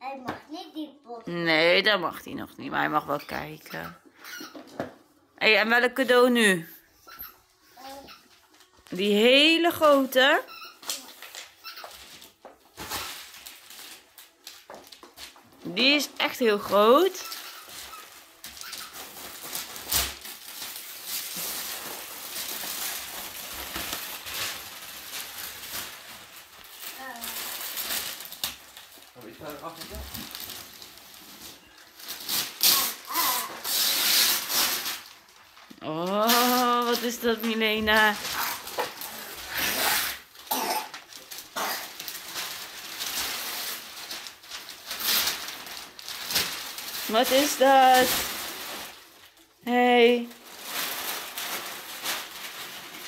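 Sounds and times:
wrapping paper tearing and crumpling: 0:07.6 - 0:53.0
loud sharp rip: 0:32.2 - 0:35.0.

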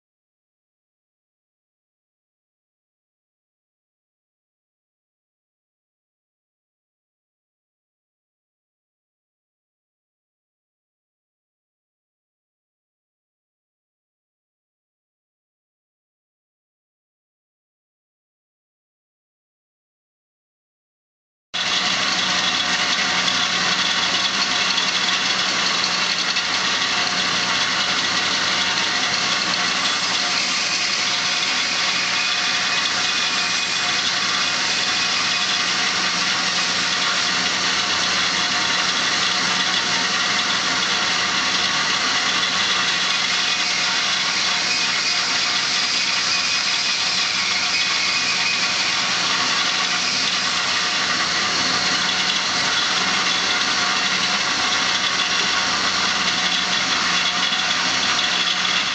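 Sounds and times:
bandsaw cutting material: 0:21.6 - 0:58.9
bandsaw running: 0:21.6 - 0:58.9.

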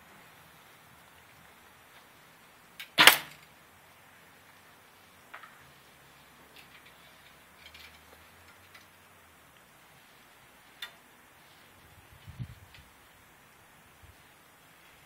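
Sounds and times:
clicks and taps of bow handling: 0:10.7 - 0:11.0.

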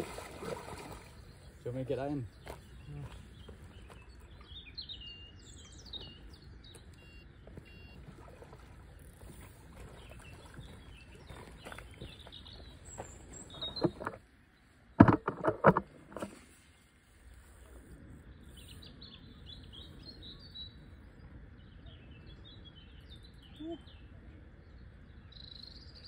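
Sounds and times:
small birds chirping: 0:00.3 - 0:14.8, 0:16.2 - 0:26.0
phone handling knocks: 0:15.0 - 0:15.8.

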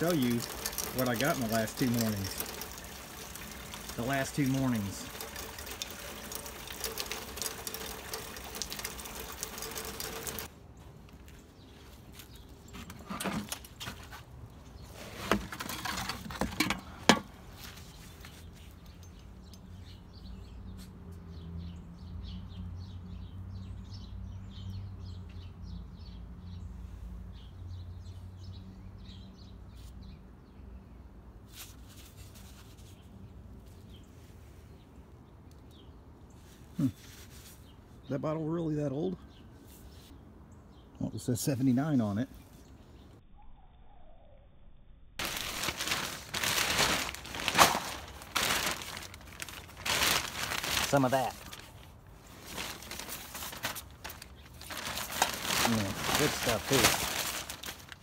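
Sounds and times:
rain hissing: 0:00.0 - 0:10.5, 0:55.0 - 0:57.6
small birds chirping: 0:00.0 - 0:15.1, 0:16.8 - 0:31.2, 0:31.8 - 0:44.4, 0:45.3 - 0:58.0.

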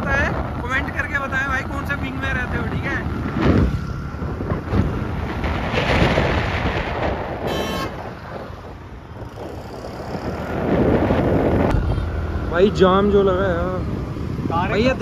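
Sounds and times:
road traffic passing: 0:00.0 - 0:15.0
short car horn toot: 0:07.5 - 0:08.0.

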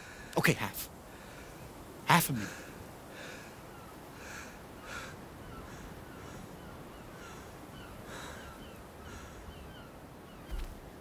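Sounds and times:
crows cawing: 0:02.5 - 0:09.9.

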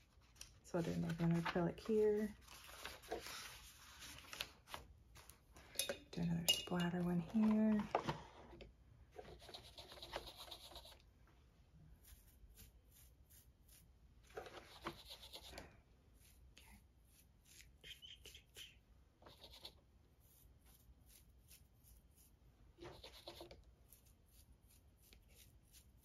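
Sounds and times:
toothbrush bristles rasping: 0:14.6 - 0:15.6, 0:16.2 - 0:26.0.

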